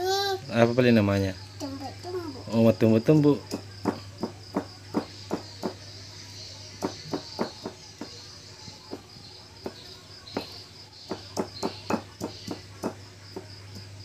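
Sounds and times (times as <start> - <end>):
pestle pounding in stone mortar: 3.4 - 5.8, 6.8 - 8.2, 8.9 - 13.9.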